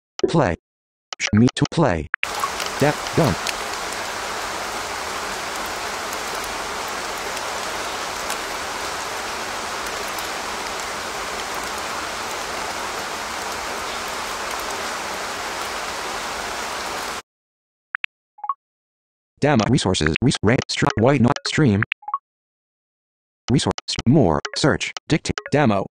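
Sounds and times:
steady rain: 2.2 - 17.2.

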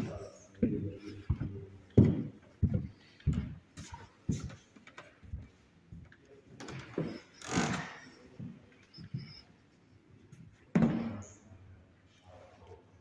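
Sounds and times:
footsteps on wooden floorboards: 0.0 - 7.3.

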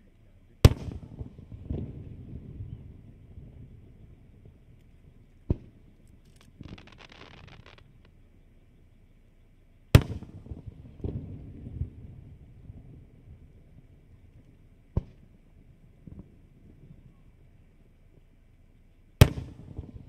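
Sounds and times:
fireworks booms: 0.7 - 8.1
fireworks bangs: 5.5 - 8.1
fireworks crackling hiss: 6.2 - 8.1.

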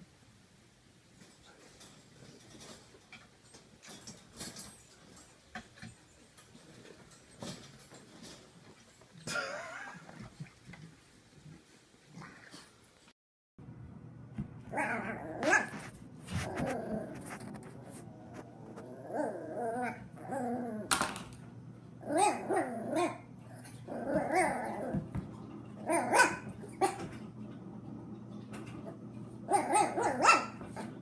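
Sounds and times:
puppy barking: 14.7 - 15.8, 25.9 - 27.1, 29.5 - 30.6
puppy growling and yapping: 14.7 - 20.9, 22.0 - 25.2, 25.8 - 27.1, 29.5 - 31.0.

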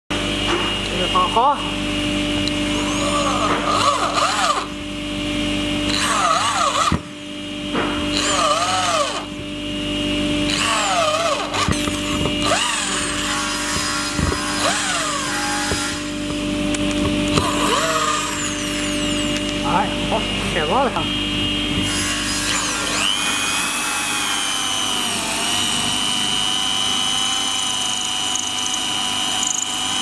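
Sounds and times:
electric drill driving screws: 2.4 - 4.8, 5.9 - 7.1, 8.1 - 9.3, 10.5 - 19.6, 21.8 - 30.0.

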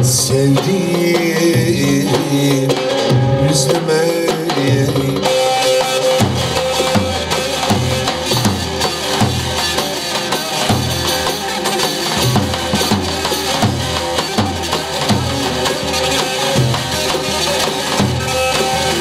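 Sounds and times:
lute melody: 5.3 - 19.0
bass drum beating: 6.1 - 10.0, 10.7 - 19.0.

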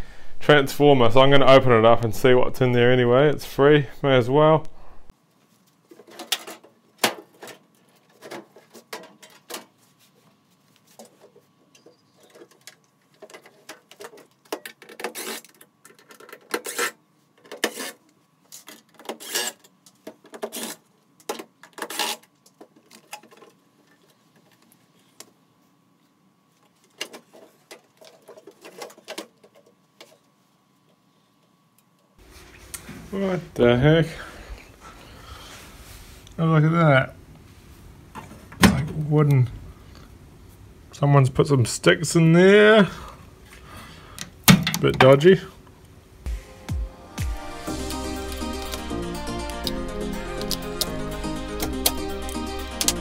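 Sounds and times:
screws and metal panels clattering: 6.0 - 9.7.

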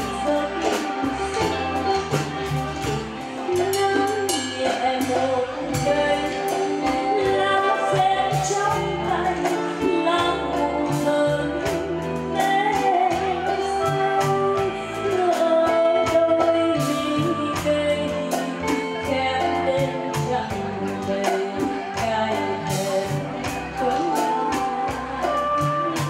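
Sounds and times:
bass line: 0.0 - 26.0
woman singing into a microphone: 0.0 - 26.0.

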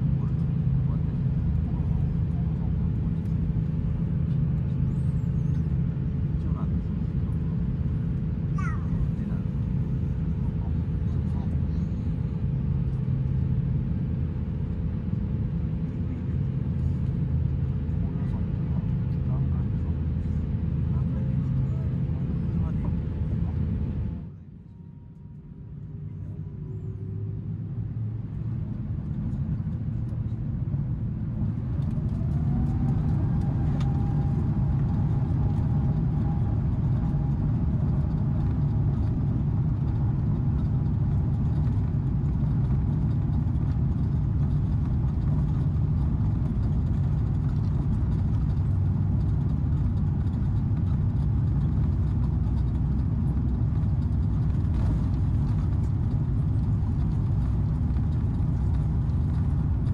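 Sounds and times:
jet engines spooling up whine: 10.8 - 59.9
loud even rumble: 26.3 - 59.9.

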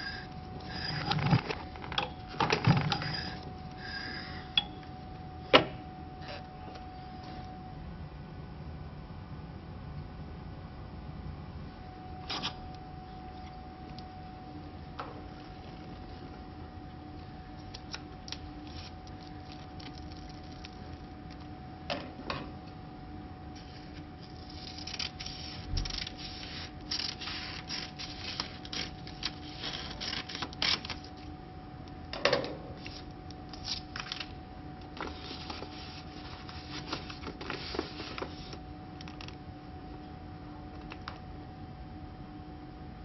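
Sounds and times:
steady low hum: 0.0 - 43.0
paper rustling and crinkling: 23.6 - 31.2, 32.8 - 38.6.

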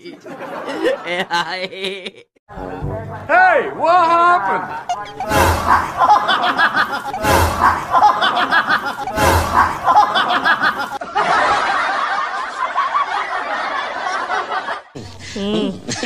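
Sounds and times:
people laughing: 0.0 - 2.4, 4.4 - 16.0
loud thumps: 6.9 - 8.2.

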